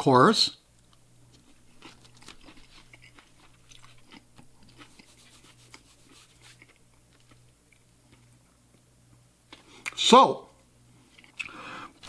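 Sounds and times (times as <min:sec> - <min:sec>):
low steady hum: 0:00.0 - 0:12.0
crunchy chewing: 0:00.8 - 0:08.4.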